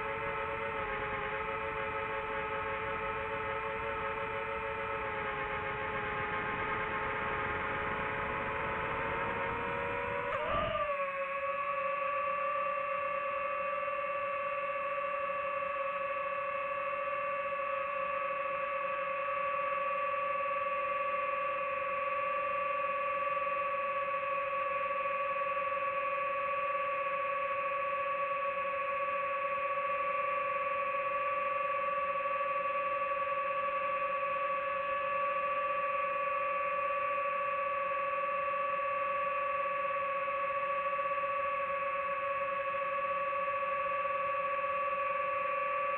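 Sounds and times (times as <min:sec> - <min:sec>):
drone motors humming: 0:00.0 - 0:20.6, 0:41.0 - 0:45.9.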